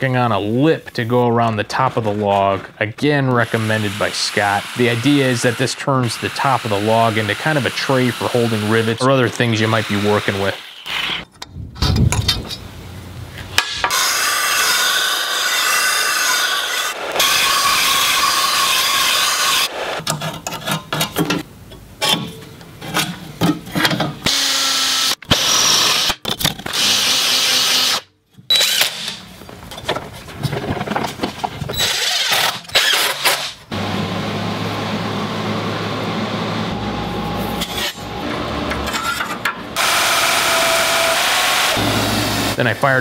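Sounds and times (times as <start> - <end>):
disc sander grinding steel: 3.4 - 11.2, 13.9 - 20.1, 34.6 - 42.6
cordless drill driving screws: 24.3 - 29.1, 31.8 - 33.6
steady machine hum: 33.7 - 40.0.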